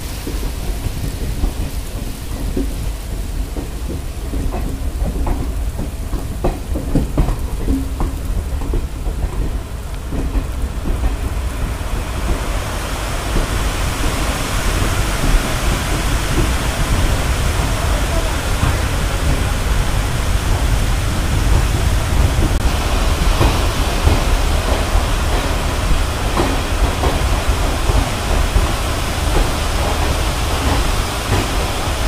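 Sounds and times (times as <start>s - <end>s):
heavy rain: 0.0s - 32.0s
hiss: 0.0s - 32.0s
wind rumbling on microphone: 0.0s - 32.0s
knocks: 3.5s - 12.5s.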